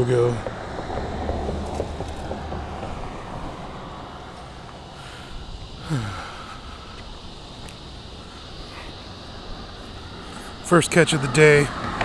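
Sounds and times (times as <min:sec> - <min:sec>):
traffic noise: 0:00.0 - 0:12.0
person sighing: 0:05.0 - 0:06.9.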